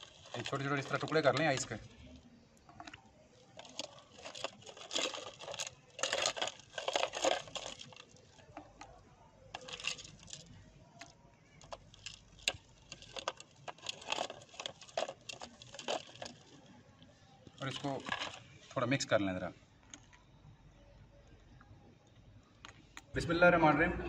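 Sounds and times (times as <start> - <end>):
ice cubes clinking in glass jug: 0.0 - 2.2, 3.5 - 8.5, 9.5 - 10.5, 11.6 - 16.6, 17.6 - 18.4.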